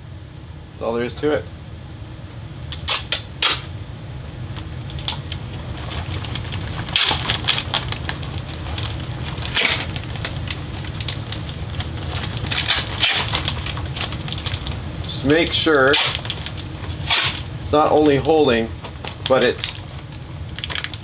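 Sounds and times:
foil duct crinkling: 4.5s - 21.0s.

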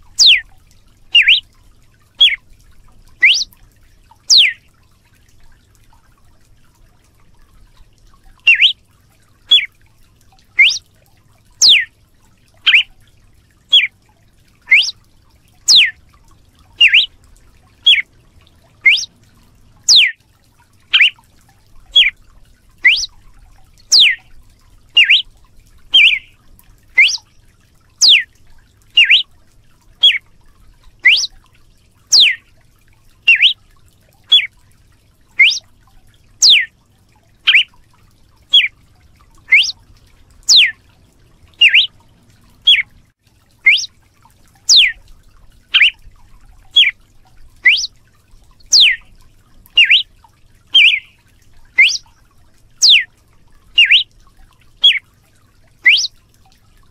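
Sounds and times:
bird whistling sharp notes: 0.1s - 0.4s, 1.2s - 1.4s, 2.2s - 2.4s, 3.2s - 3.5s, 4.3s - 4.6s, 8.5s - 8.8s, 10.6s - 10.8s, 11.6s - 11.9s, 12.6s - 12.9s, 14.7s - 15.0s, 15.7s - 16.0s, 16.8s - 17.1s, 18.8s - 19.1s, 19.9s - 20.2s, 20.9s - 21.2s, 21.9s - 22.1s, 22.8s - 23.1s, 23.9s - 24.2s, 25.0s - 25.3s, 26.0s - 26.3s, 27.0s - 27.2s, 28.0s - 28.3s, 29.0s - 29.2s, 31.0s - 31.3s, 32.1s - 32.4s, 33.3s - 33.6s, 35.4s - 35.6s, 36.4s - 36.7s, 37.5s - 37.7s, 38.5s - 38.7s, 39.5s - 39.8s, 40.5s - 40.8s, 41.6s - 41.9s, 43.6s - 43.9s, 44.7s - 45.0s, 45.8s - 46.0s, 47.6s - 47.9s, 48.7s - 49.0s, 49.8s - 50.1s, 50.8s - 51.2s, 51.8s - 52.1s, 52.8s - 53.1s, 53.8s - 54.1s, 55.8s - 56.1s.

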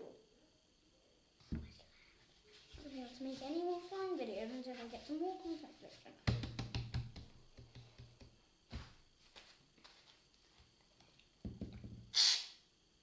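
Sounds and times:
containers knocking on table: 11.4s - 12.1s
short loud hiss: 12.1s - 12.6s.

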